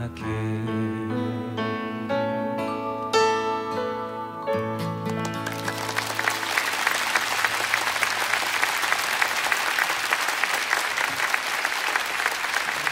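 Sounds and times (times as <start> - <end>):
audience applauding: 5.0 - 12.9.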